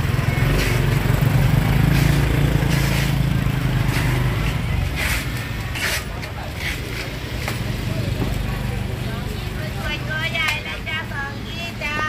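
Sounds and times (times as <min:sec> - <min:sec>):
motorcycle engine passing: 0:00.0 - 0:05.4.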